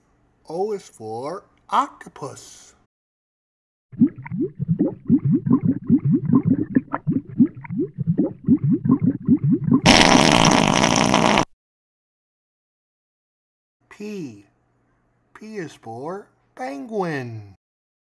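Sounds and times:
underwater bubble gurgles: 4.0s - 9.9s.

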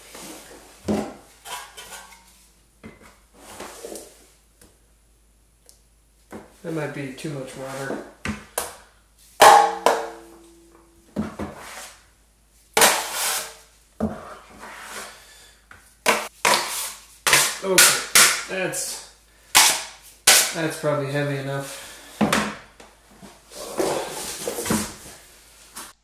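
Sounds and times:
taping knife scraping metal pan: 1.4s - 2.2s, 12.8s - 13.6s, 16.4s - 18.4s
metal pan ringing: 9.4s - 11.0s.

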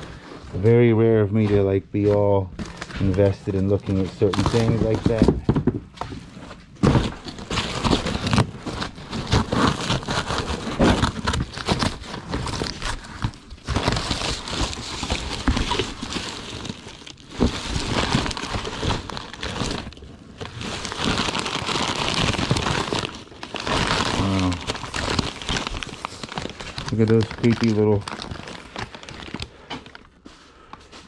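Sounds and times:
paper and plastic crinkling: 0.0s - 31.0s
objects knocking and clattering: 4.4s - 7.5s.

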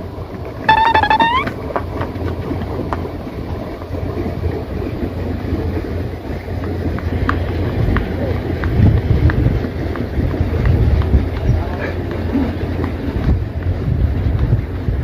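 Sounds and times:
short high-pitched cry: 0.7s - 1.5s
wind buffeting microphone: 6.3s - 15.0s.

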